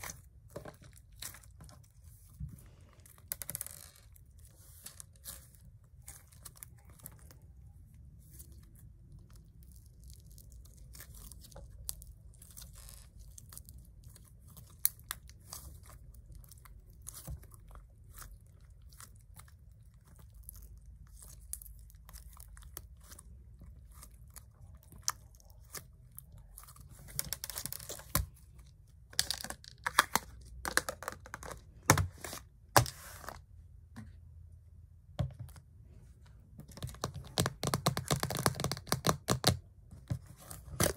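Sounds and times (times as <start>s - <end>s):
slime squishing with sticky clicks: 3.0s - 31.8s.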